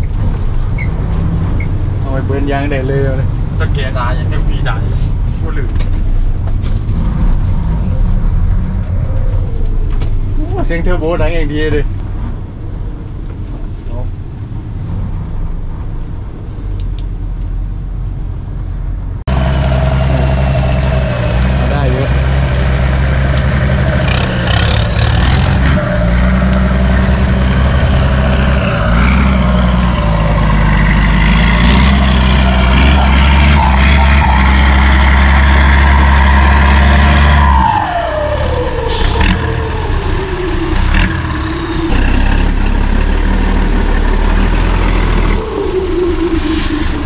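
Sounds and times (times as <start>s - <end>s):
diesel truck engine under load: 14.3s - 47.0s.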